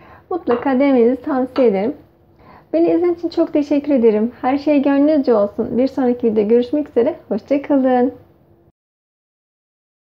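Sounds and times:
woman speaking: 0.3 - 2.0, 2.7 - 8.3.

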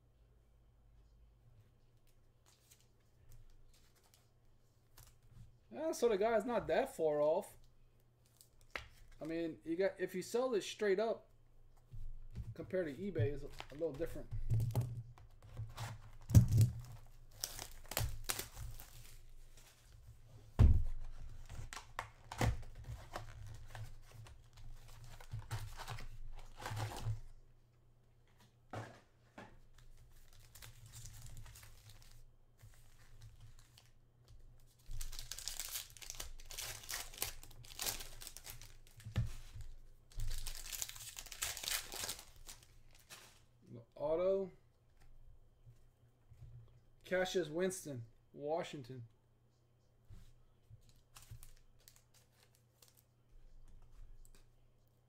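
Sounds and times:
wrapper crinkling and tearing: 16.5 - 19.7, 34.8 - 39.0, 40.2 - 43.4, 51.1 - 53.1.

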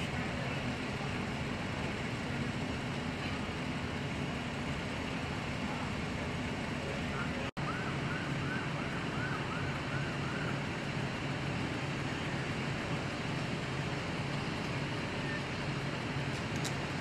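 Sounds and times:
engine hum: 0.0 - 17.0
faint siren yelping: 7.2 - 10.8.

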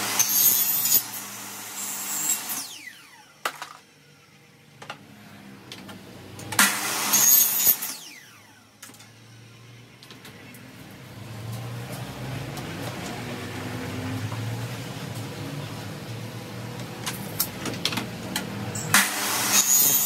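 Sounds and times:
power tool whining: 0.0 - 10.6, 18.5 - 20.0.

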